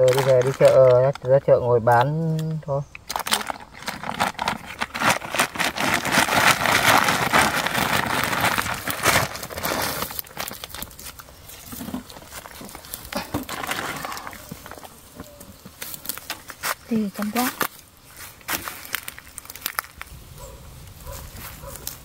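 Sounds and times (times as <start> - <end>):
plastic sack rustling: 0.0 - 1.5, 3.1 - 20.2.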